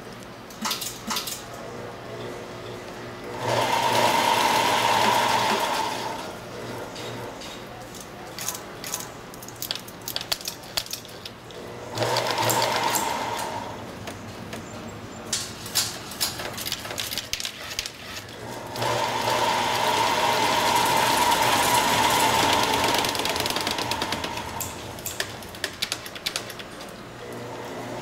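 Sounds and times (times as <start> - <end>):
taping machine running: 3.2 - 7.0, 11.6 - 13.8, 16.6 - 25.9
clicks and rattles of handling: 7.4 - 11.6, 14.0 - 18.4.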